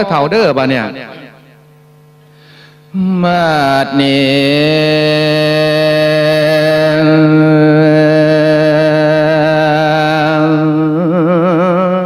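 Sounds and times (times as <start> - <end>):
man singing long held note: 2.9 - 12.0.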